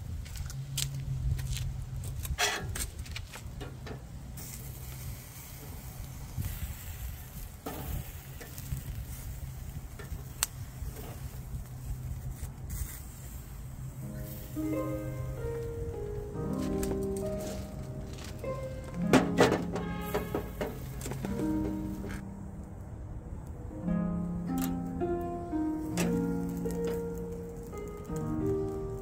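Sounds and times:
meat sizzling on a grill: 4.4 - 15.8
metal tongs clicking on grate: 26.0 - 27.0.

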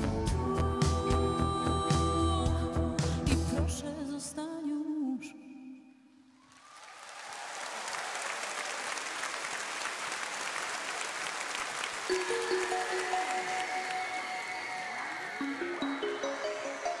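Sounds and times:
audience applause: 6.4 - 17.0.

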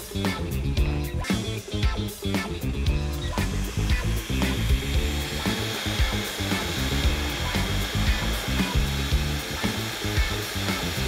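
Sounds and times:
background music: 0.0 - 11.0
food processor motor running: 2.9 - 11.0.

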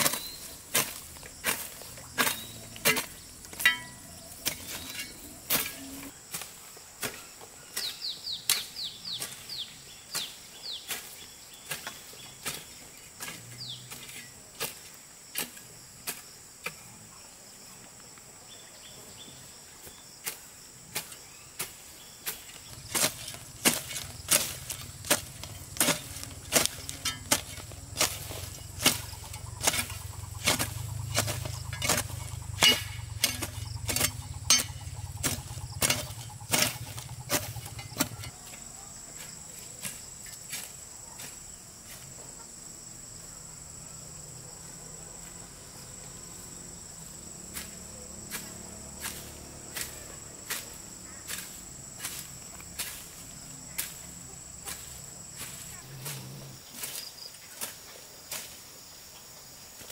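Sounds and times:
high insect drone: 8.8 - 59.9
sharp knocks: 22.9 - 38.3.

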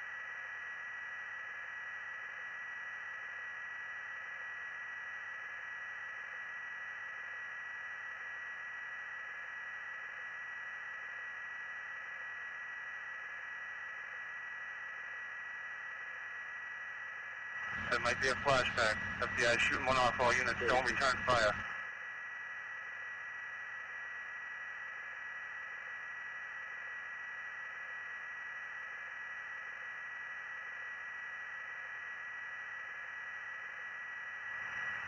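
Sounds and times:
constant high tone: 17.6 - 21.8
radio channel hiss: 17.6 - 21.8, 34.5 - 35.0.

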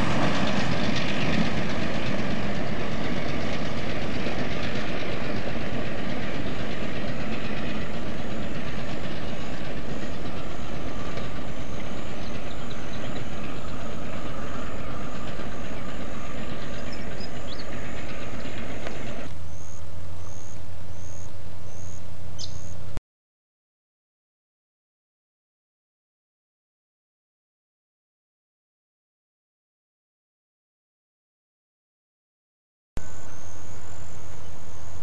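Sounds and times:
diesel locomotive engine rumble: 0.0 - 23.0, 33.0 - 35.0
steady low hum: 33.0 - 35.0.

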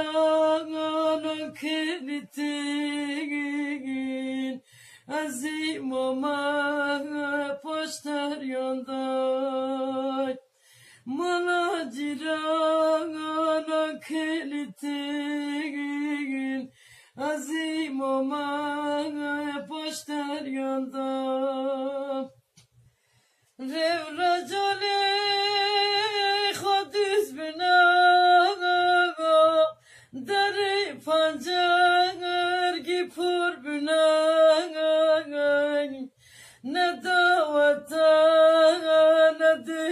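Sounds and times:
solo voice singing a lament: 0.0 - 22.4, 23.6 - 39.9
singer breathing: 4.6 - 5.1, 10.4 - 11.1, 16.7 - 17.2, 22.8 - 23.6, 29.8 - 30.2, 36.1 - 36.7.

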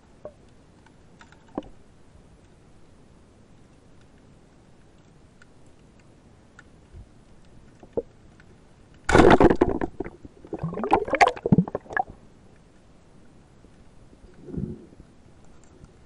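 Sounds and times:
faint underwater clicks: 0.1 - 2.8, 3.4 - 9.1
rush of bubbling water: 9.1 - 12.2.

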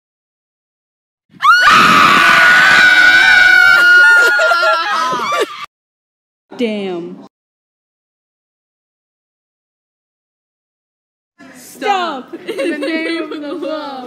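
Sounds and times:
high-pitched human scream: 1.4 - 5.7.

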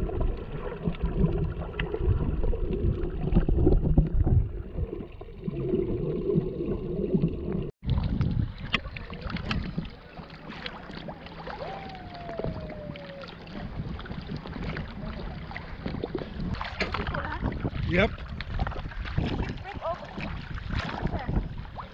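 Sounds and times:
muffled underwater water noise: 0.0 - 21.9
water splashing and lapping: 0.0 - 21.9.

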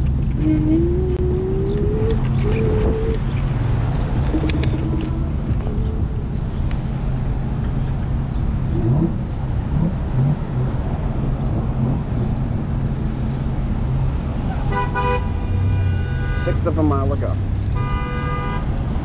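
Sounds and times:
engine rising and falling: 0.0 - 6.4
traffic rumble: 0.0 - 19.0.

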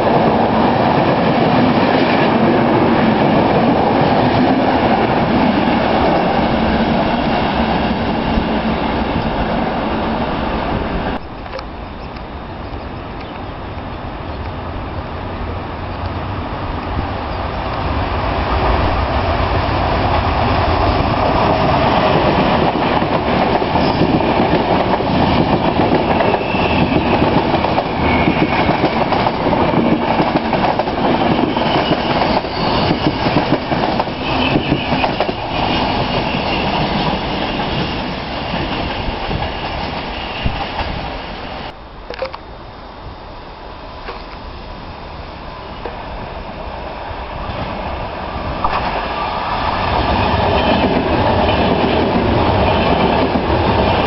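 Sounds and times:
train passing: 0.0 - 54.0
high wheel squeal: 23.7 - 24.2, 26.0 - 27.2, 31.2 - 33.3, 34.1 - 41.7.

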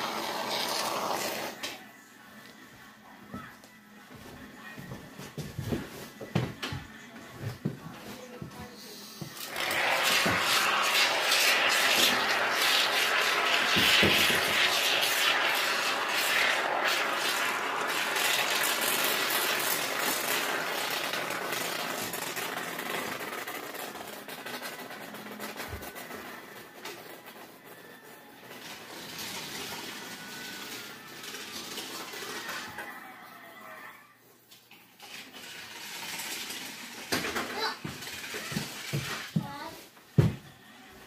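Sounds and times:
spray foam can hissing: 0.0 - 1.6, 9.4 - 25.9.

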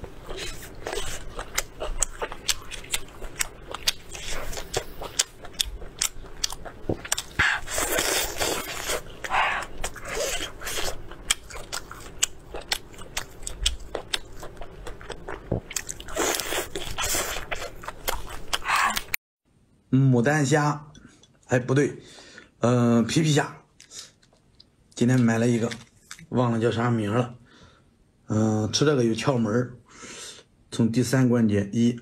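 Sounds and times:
chewing and biting: 0.2 - 19.2.

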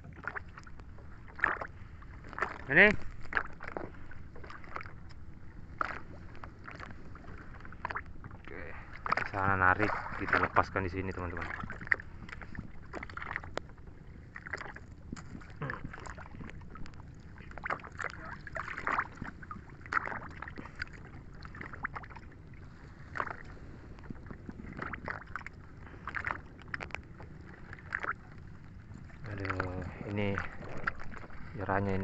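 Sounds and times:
low steady rumble: 0.0 - 32.0
seawater splashing and sloshing: 0.0 - 32.0.

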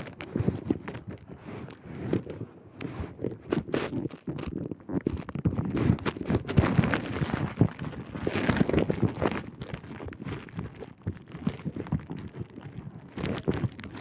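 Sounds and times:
cloth rubbing on microphone: 0.0 - 14.0.

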